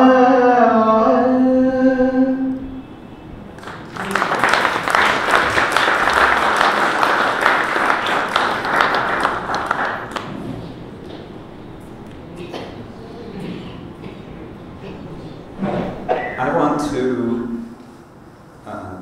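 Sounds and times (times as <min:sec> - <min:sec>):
audience clapping: 0:03.5 - 0:11.3.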